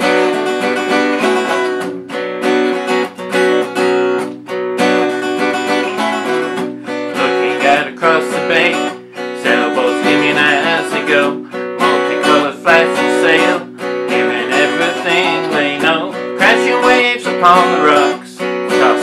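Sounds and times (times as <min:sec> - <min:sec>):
acoustic guitar strumming: 0:00.0 - 0:19.0
man singing: 0:06.9 - 0:19.0.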